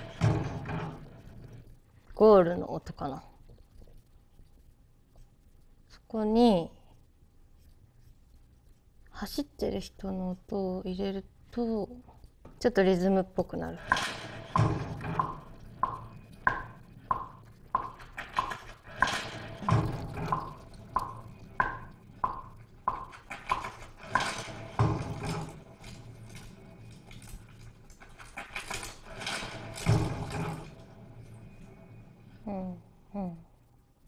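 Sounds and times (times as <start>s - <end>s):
footstep sample ticks: 15.8s - 18.0s.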